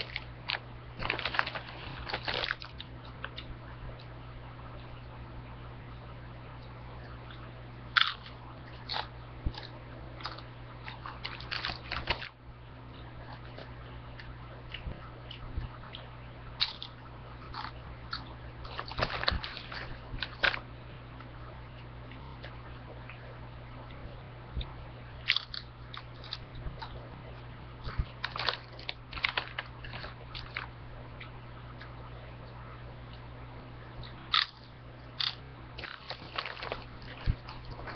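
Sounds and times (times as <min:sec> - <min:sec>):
chips being crunched: 0:00.0 - 0:02.8, 0:08.0 - 0:12.3, 0:25.3 - 0:26.4, 0:28.2 - 0:30.7, 0:34.3 - 0:34.6, 0:35.2 - 0:37.9.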